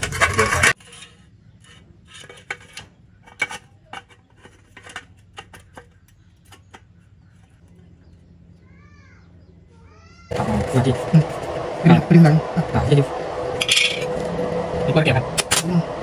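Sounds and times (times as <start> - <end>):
metal tubes clinking and knocking: 0.0 - 7.7, 13.6 - 14.1
loud noise: 10.3 - 16.0.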